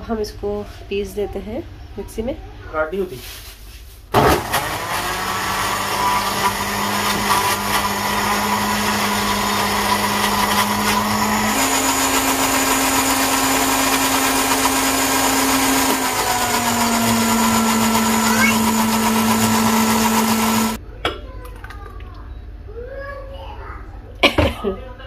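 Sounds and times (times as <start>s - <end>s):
blender motor grinding: 4.2s - 20.8s.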